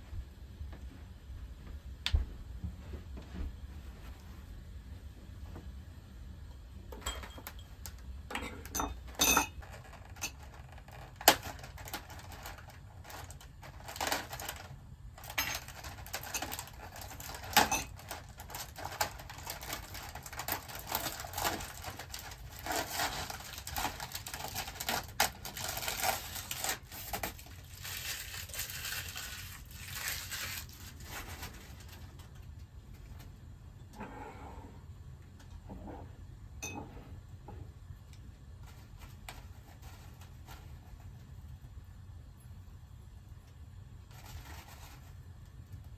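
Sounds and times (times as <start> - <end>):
glasses and dishes clinking: 7.0 - 7.7, 8.3 - 9.6, 36.6 - 37.0
plastic packet crinkling: 9.6 - 32.5.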